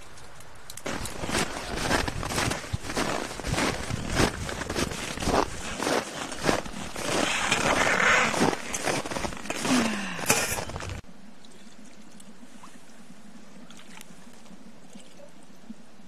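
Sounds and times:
footsteps crunching in snow: 0:00.8 - 0:11.0.

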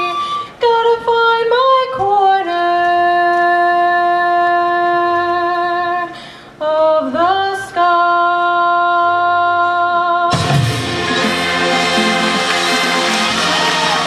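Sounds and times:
marching band brass and drums: 0:10.3 - 0:14.0
solo instrument holding long notes: 0:10.4 - 0:14.0.

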